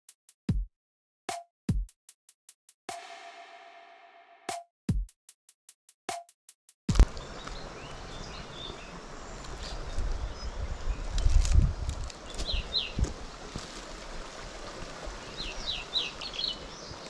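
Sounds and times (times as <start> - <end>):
electronic drum-machine beat: 1.7 - 2.0, 4.9 - 5.2
birds chirping: 7.0 - 11.4, 12.2 - 13.0, 15.2 - 17.0.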